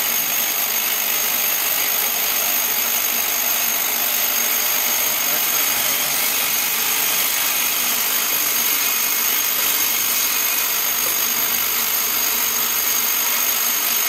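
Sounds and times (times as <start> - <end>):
steel parts chattering in vibrating bowl: 0.0 - 14.0.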